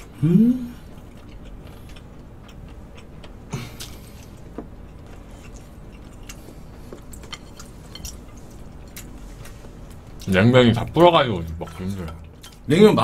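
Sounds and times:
low vocal grunt: 0.2 - 0.8
chewing smacks: 0.9 - 10.3.

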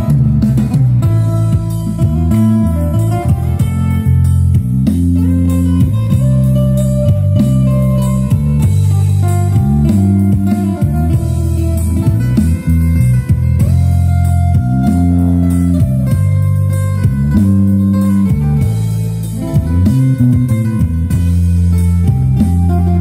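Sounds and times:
live band playing amplified music: 0.0 - 23.0
sliding held melody notes: 0.0 - 23.0.

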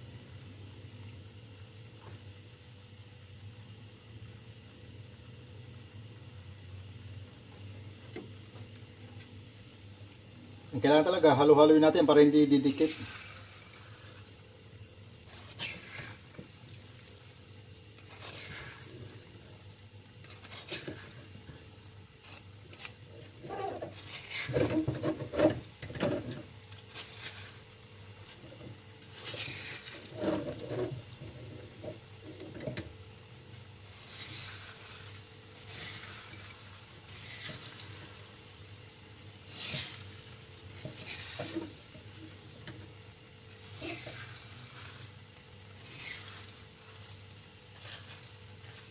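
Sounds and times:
peanuts scraping in a metal pan: 10.8 - 14.3, 15.2 - 48.9.

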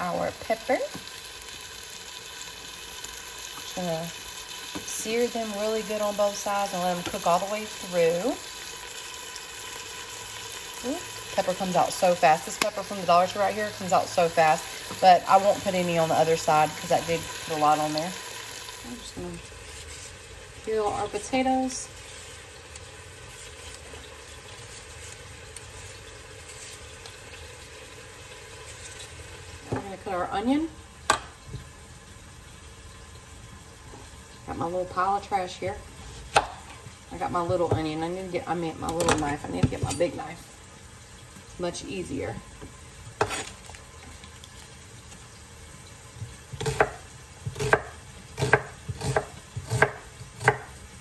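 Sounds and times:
meat sizzling in a pan: 0.0 - 37.1, 40.1 - 51.0
knife chopping on wooden board: 46.6 - 50.7.

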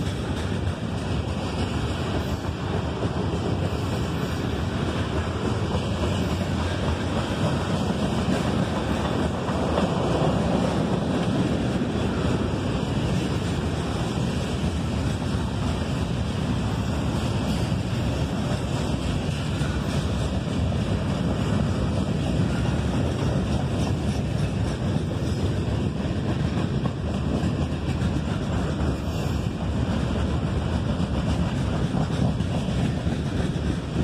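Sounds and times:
freight cars rolling on rails: 0.0 - 34.0.

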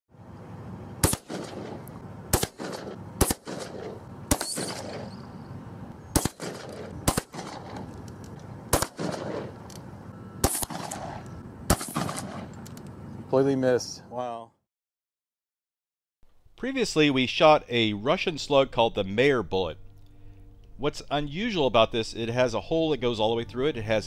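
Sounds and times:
shotgun shots echoing: 1.0 - 5.2, 6.1 - 7.9, 8.7 - 9.7, 10.4 - 12.6.

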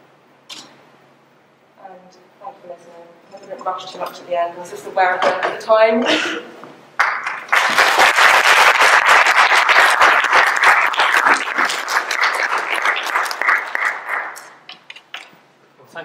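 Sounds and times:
audience applauding: 7.0 - 14.7.

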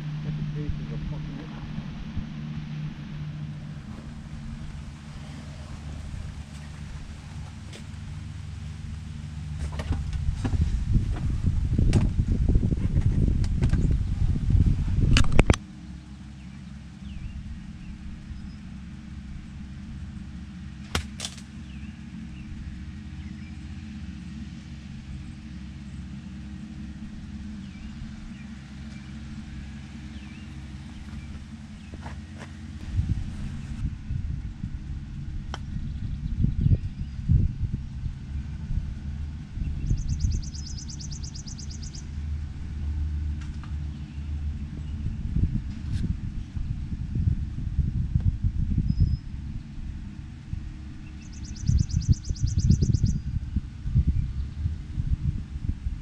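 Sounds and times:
steady low hum: 0.0 - 56.0
steady low rumble: 0.0 - 56.0
golf iron striking ball: 20.8 - 21.9, 35.4 - 35.8
small bird trilling: 39.8 - 42.0, 51.1 - 53.2.

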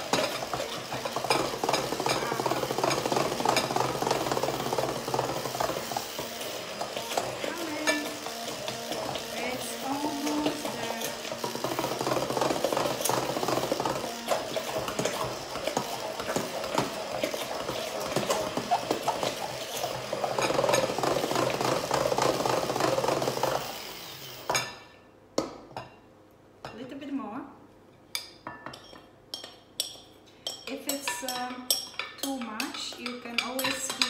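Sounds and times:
stick blender running: 0.0 - 24.6.

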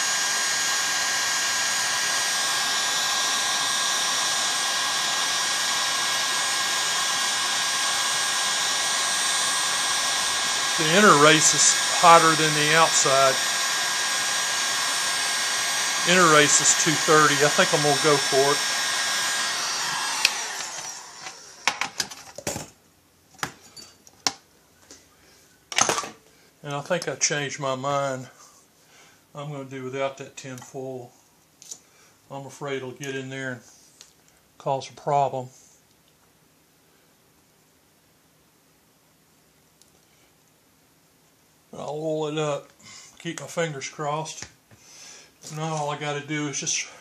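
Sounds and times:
heat gun blowing with whine: 0.0 - 22.1.

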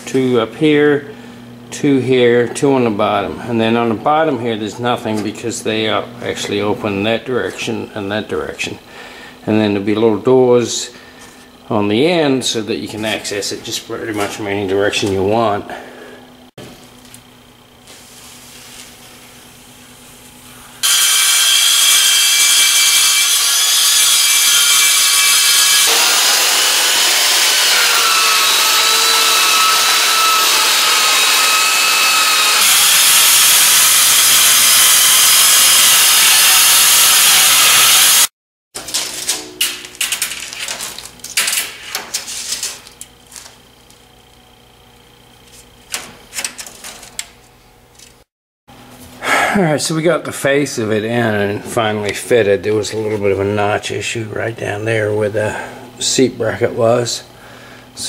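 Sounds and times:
power saw cutting aluminium: 20.8 - 38.3
metal sheet clattering: 38.8 - 43.5.

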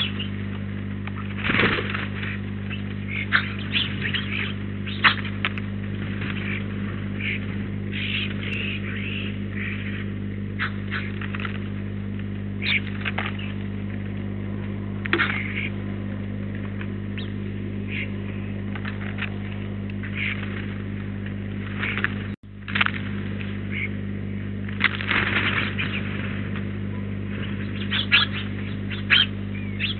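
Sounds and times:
bird chirps and calls: 0.0 - 0.4, 2.2 - 5.4, 7.2 - 10.0, 12.6 - 13.6, 17.2 - 18.1, 27.0 - 29.9
electrical hum: 0.0 - 29.9.

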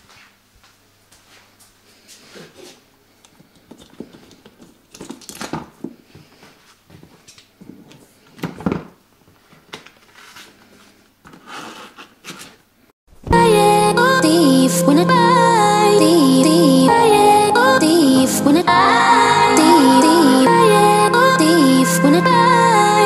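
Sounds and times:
handling rustling and crinkling: 3.4 - 12.6.

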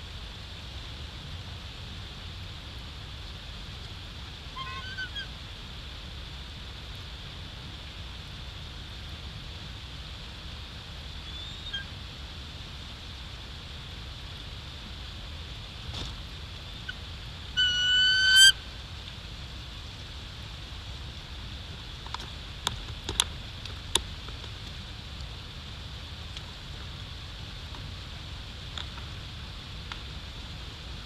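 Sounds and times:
eagle whistled call: 4.6 - 5.3, 11.2 - 11.9, 17.6 - 18.6.

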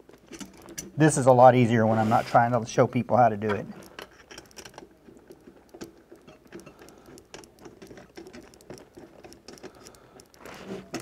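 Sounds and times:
metal screw clicks and scratches: 3.4 - 11.0.

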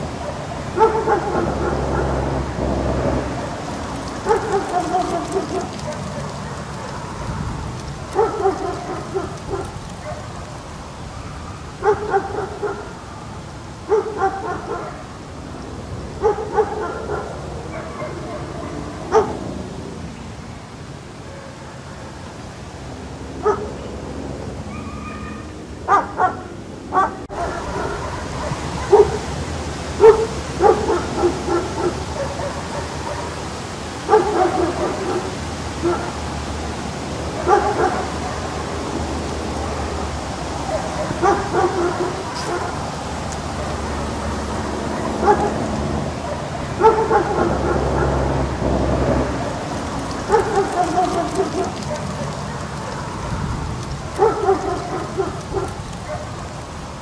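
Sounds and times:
dog barking: 0.2 - 2.2, 4.2 - 7.5, 8.1 - 10.4, 11.8 - 12.9, 13.9 - 15.1, 16.2 - 19.4, 23.4 - 23.7, 25.9 - 29.3, 30.0 - 33.4, 34.1 - 36.2, 37.3 - 38.5, 40.6 - 42.8, 44.9 - 45.6, 46.2 - 48.3, 50.2 - 53.5, 54.2 - 56.4.

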